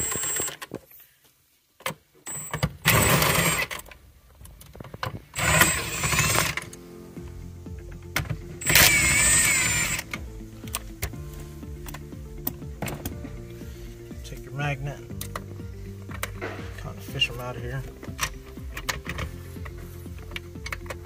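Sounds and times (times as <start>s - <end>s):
power driver motor whine: 0.0s - 0.6s, 2.3s - 3.7s, 5.4s - 6.8s, 8.2s - 13.4s.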